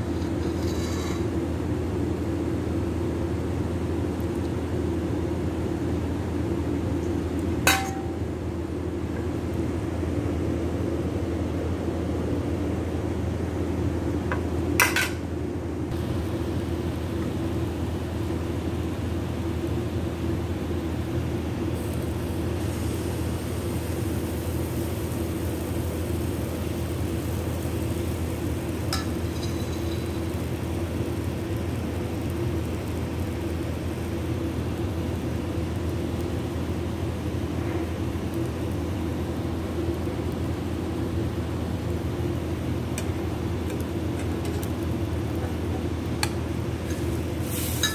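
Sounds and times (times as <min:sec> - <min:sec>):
steady low hum: 0:00.0 - 0:47.9
batter sizzling in a pan: 0:15.9 - 0:47.9.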